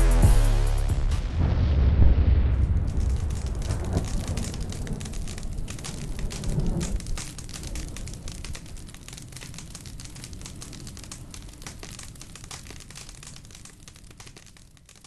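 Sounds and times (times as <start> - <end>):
low rumble: 0.0 - 8.3
fire crackling and popping: 1.0 - 15.0.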